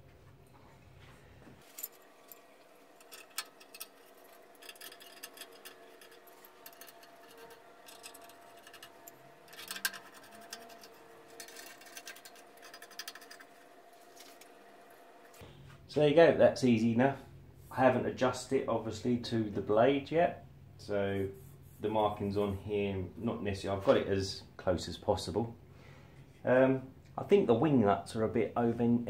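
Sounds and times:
metal parts clicking and scraping: 1.6s - 14.6s.

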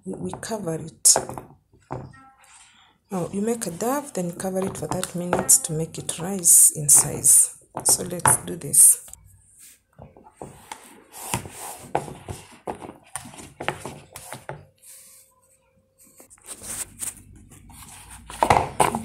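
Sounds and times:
spoon stirring dough in a bowl: 0.0s - 8.9s, 9.6s - 15.2s.

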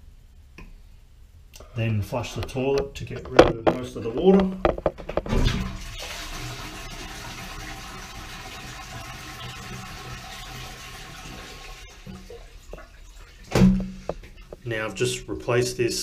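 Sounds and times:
toilet flushing: 5.3s - 15.4s.

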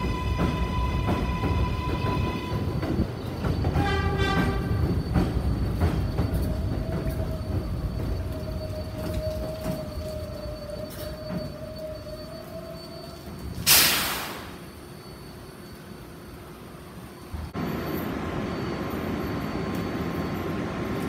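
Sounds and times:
train wheels clicking: 0.0s - 14.8s
subway train rumbling: 0.0s - 21.0s.

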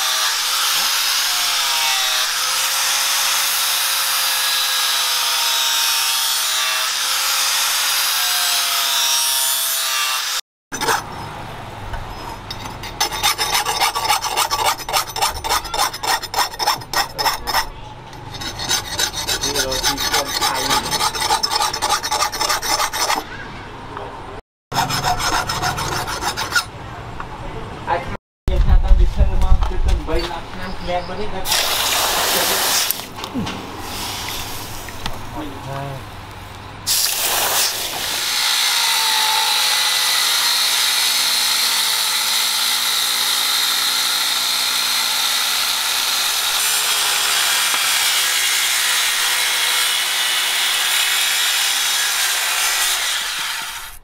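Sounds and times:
blade rasping against grinding disc: 10.7s - 11.2s, 12.1s - 23.2s, 24.7s - 26.7s.

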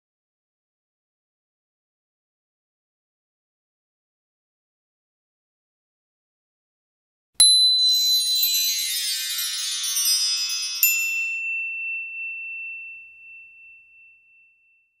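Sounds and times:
bright shimmering chimes: 7.4s - 13.7s.

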